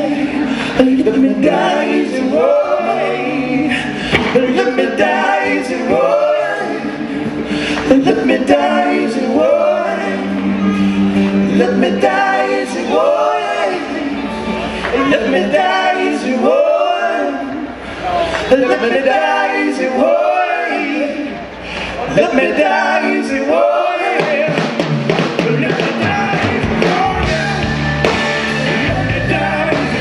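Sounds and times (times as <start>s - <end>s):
man singing: 0.0s - 6.0s, 14.8s - 17.5s, 22.0s - 24.6s, 25.3s - 27.8s, 28.8s - 30.0s
blues rock band playing: 24.2s - 30.0s.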